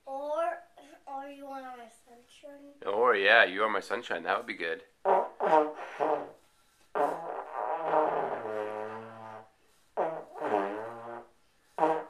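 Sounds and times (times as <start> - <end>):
trombone notes: 5.0 - 12.0.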